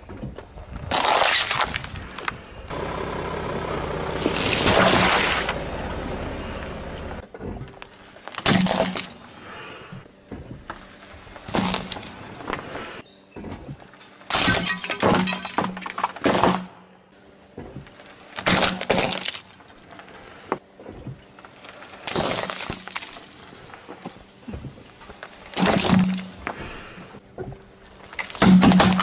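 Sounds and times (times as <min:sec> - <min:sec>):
tyre crushing hard objects: 0:07.4 - 0:09.4, 0:11.4 - 0:12.8, 0:28.0 - 0:29.0
thin high tone: 0:22.3 - 0:24.2.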